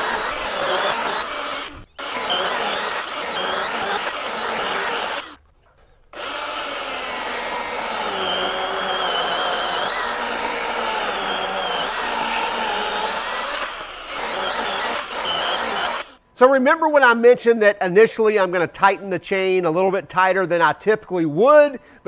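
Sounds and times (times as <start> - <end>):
chainsaw cutting wood: 0.0 - 5.5, 6.1 - 16.2.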